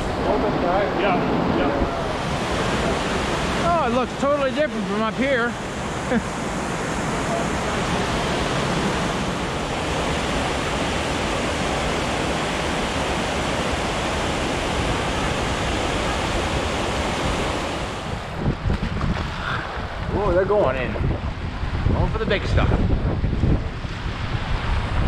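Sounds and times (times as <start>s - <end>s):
river rapids rushing: 0.0s - 18.3s.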